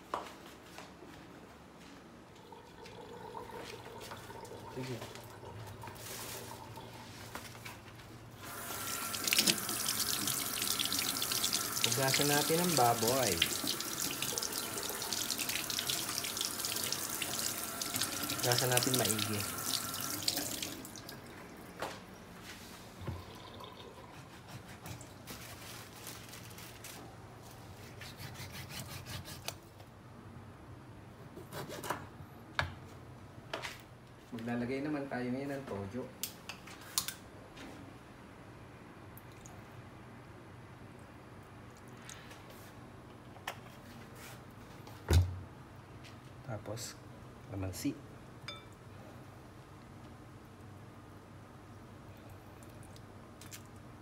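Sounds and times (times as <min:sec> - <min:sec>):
tap water splashing into sink: 0:08.9 - 0:21.2.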